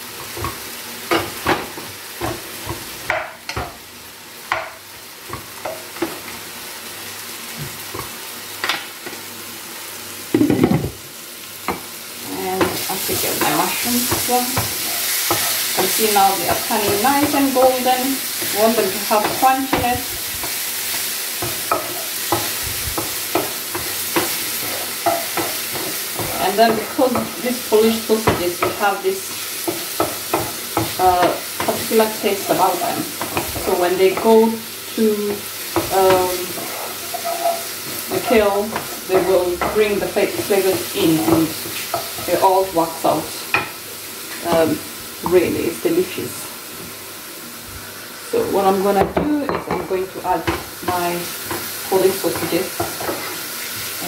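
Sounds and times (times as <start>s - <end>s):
frying sizzle: 0.0s - 54.0s
wooden spoon scraping a pot: 12.6s - 17.4s, 18.3s - 34.4s, 35.8s - 42.5s.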